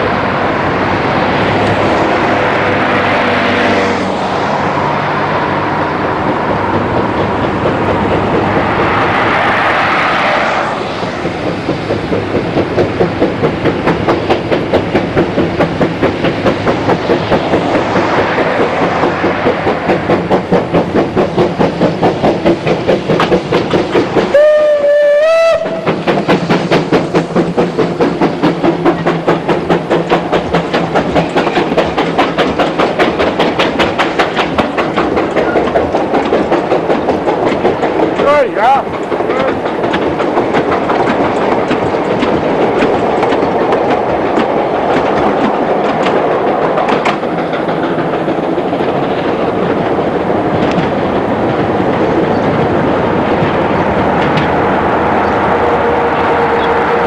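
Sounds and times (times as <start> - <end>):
train wheels clickety-clack: 0.0 - 57.0
train horn blast: 55.5 - 57.0.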